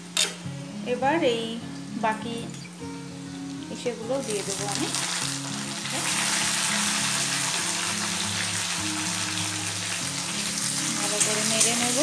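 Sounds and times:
instrumental background music: 0:00.0 - 0:12.0
vegetables sizzling in hot oil: 0:03.3 - 0:12.0.

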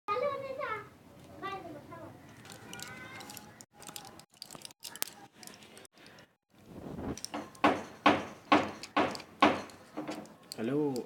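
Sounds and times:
knocks: 0:07.3 - 0:10.3.

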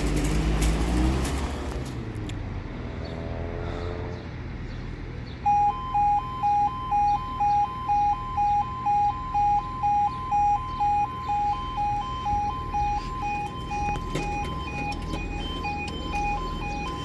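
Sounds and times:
level crossing two-tone alarm: 0:05.4 - 0:17.0.

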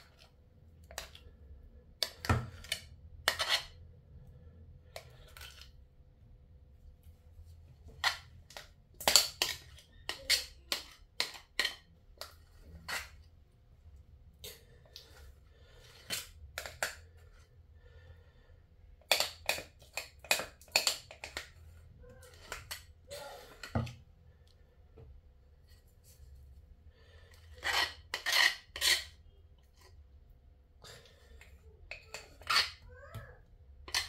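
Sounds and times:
metal spoon scraping ceramic bowl: 0:02.0 - 0:03.8, 0:08.0 - 0:13.3, 0:22.2 - 0:23.7, 0:27.2 - 0:29.9, 0:30.9 - 0:32.9.

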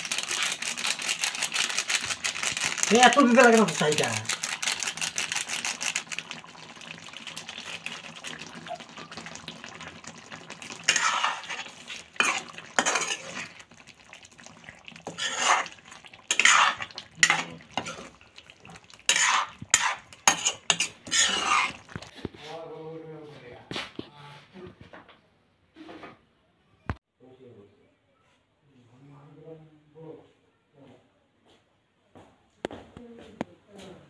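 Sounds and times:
soft sizzle of simmering gravy: 0:00.0 - 0:22.4
spatula scraping metal pan: 0:10.7 - 0:13.6, 0:15.0 - 0:22.2.

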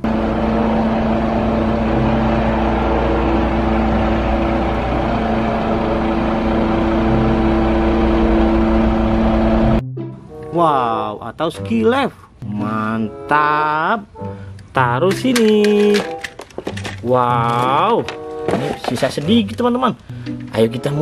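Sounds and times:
diesel engine running: 0:00.0 - 0:09.8.

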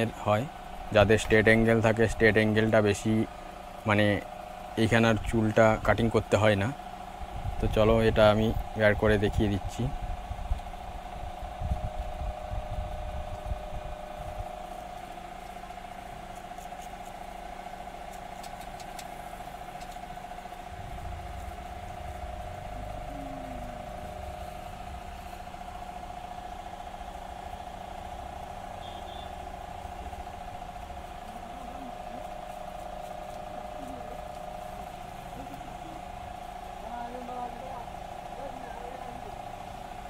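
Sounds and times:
steady mechanical hum: 0:00.0 - 0:40.0
low rumbling handling noise: 0:10.0 - 0:28.8.

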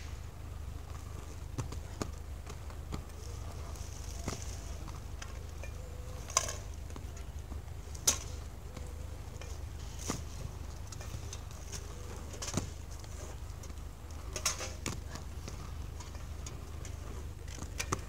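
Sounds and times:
inline skate wheels rumbling on concrete: 0:00.0 - 0:18.0.

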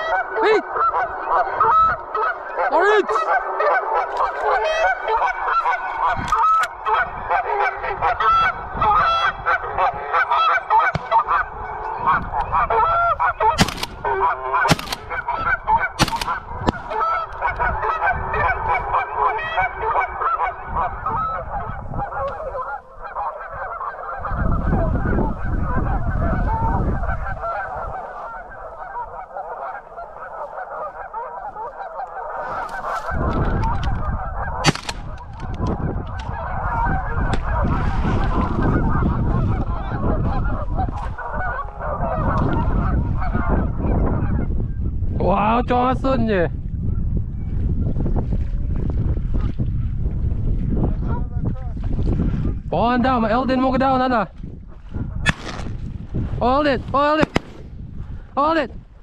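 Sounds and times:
geese honking: 0:00.0 - 0:44.6
sharp cracks: 0:13.6 - 0:14.0, 0:14.7 - 0:15.1, 0:16.0 - 0:16.9, 0:34.6 - 0:35.2, 0:57.2 - 0:57.7.

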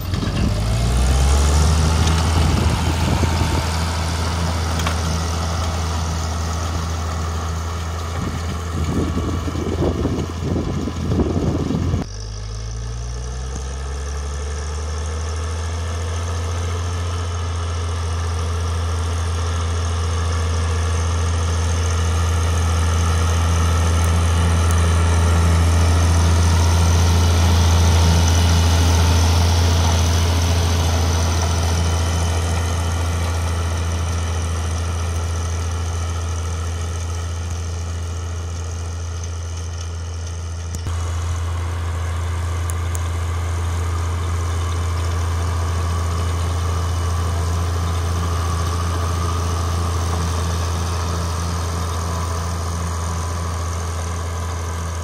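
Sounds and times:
tractor diesel engine under load: 0:00.0 - 0:55.0
harrow rattling: 0:01.8 - 0:12.1.

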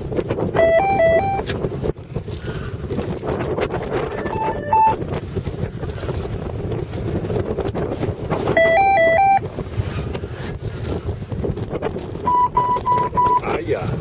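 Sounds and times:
strong wind over microphone: 0:00.0 - 0:14.0
short single-pitch beeps: 0:00.6 - 0:01.4, 0:04.1 - 0:05.0, 0:08.5 - 0:09.4, 0:12.2 - 0:13.6
two-pitch electronic beeps: 0:00.6 - 0:01.4, 0:04.1 - 0:05.0, 0:08.6 - 0:09.4, 0:12.3 - 0:13.6.

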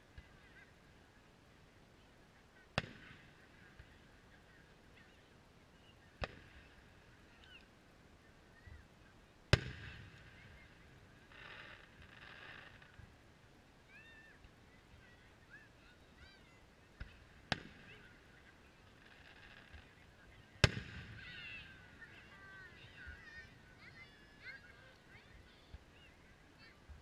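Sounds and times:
distant firework bursts: 0:02.8 - 0:04.2, 0:09.5 - 0:13.0, 0:17.0 - 0:24.2.

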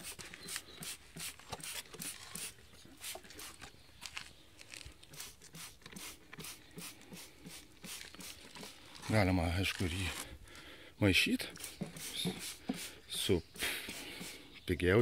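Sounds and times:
spray bottle squirting: 0:00.0 - 0:03.7, 0:05.1 - 0:08.8, 0:11.5 - 0:13.0, 0:13.8 - 0:14.5.

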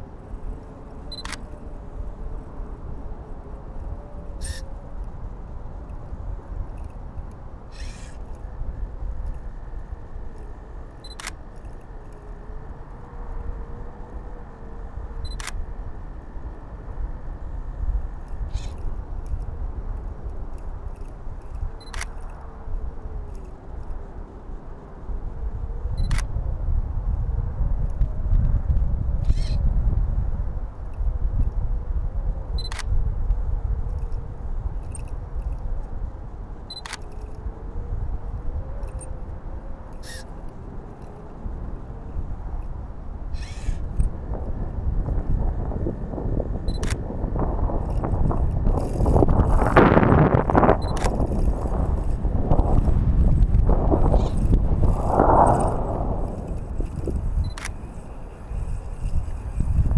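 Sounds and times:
wind buffeting microphone: 0:00.0 - 0:59.9
camera shutter clicks: 0:01.1 - 0:01.5, 0:11.1 - 0:11.4, 0:15.3 - 0:15.6, 0:21.8 - 0:22.2, 0:26.0 - 0:26.3, 0:32.6 - 0:32.9, 0:36.8 - 0:37.2, 0:46.8 - 0:47.0, 0:50.9 - 0:51.2, 0:57.5 - 0:57.9
sharp clicks: 0:10.3 - 0:12.2, 0:36.7 - 0:37.4, 0:46.7 - 0:47.0, 0:56.5 - 0:57.8.

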